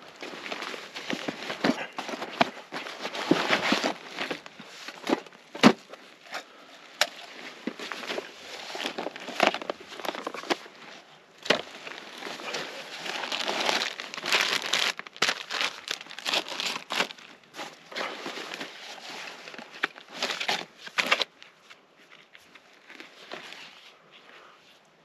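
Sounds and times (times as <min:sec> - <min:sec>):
crinkling and rustling: 0:00.0 - 0:24.9.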